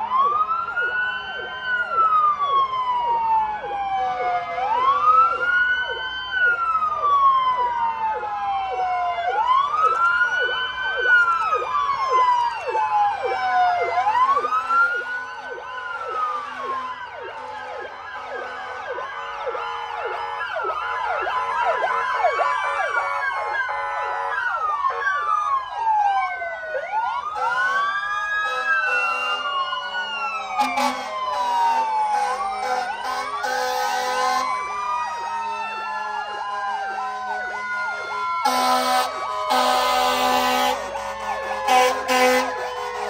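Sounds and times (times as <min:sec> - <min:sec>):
fire truck sirens wailing: 0:00.0 - 0:43.0
truck air horn blast: 0:27.4 - 0:29.5, 0:30.6 - 0:34.4, 0:37.9 - 0:43.0.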